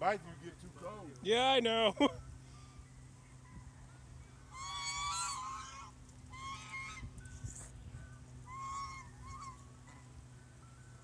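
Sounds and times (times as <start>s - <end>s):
geese honking: 4.5s - 7.2s, 8.4s - 10.2s.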